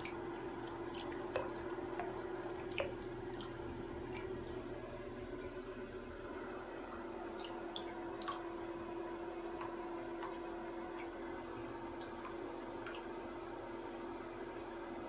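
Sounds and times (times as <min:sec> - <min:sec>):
water splashing and dripping: 0:00.0 - 0:13.4
steady low hum: 0:00.0 - 0:15.0.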